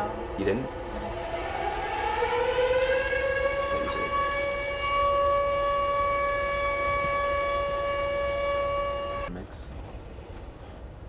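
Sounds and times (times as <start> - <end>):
long sustained tone: 0.0 - 9.3.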